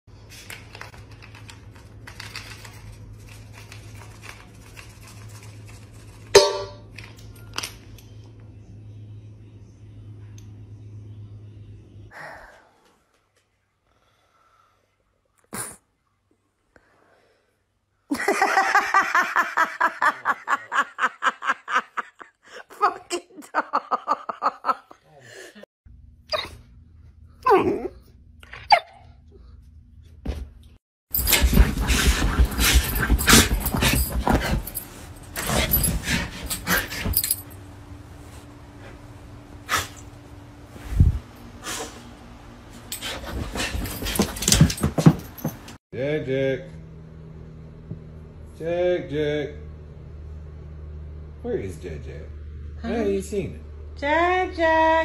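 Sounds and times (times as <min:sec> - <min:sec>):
low steady hum: 0:00.4 - 0:12.8
metal bowl struck and ringing: 0:06.4 - 0:06.9
person laughing hard: 0:18.1 - 0:25.0.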